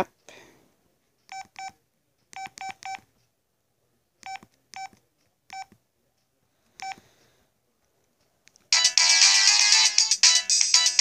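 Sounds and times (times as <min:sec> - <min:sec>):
phone keypad beeps: 0:02.4 - 0:03.0, 0:04.2 - 0:05.7.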